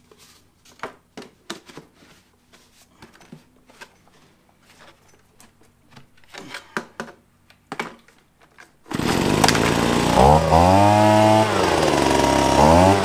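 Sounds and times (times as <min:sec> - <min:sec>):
leaf blower engine revving: 0:08.9 - 0:13.0.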